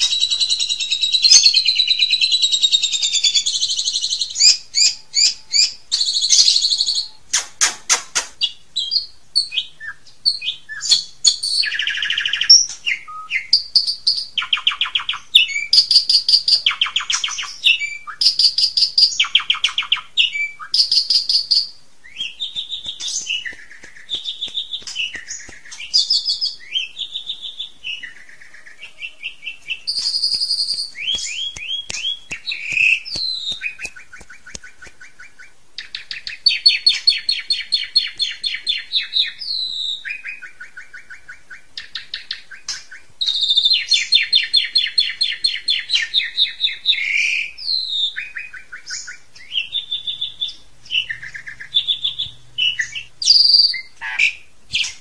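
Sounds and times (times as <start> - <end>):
starling singing whistles and chatter: 0.0 - 7.2, 8.4 - 55.0
fast rattling bird trills: 13.7 - 28.8.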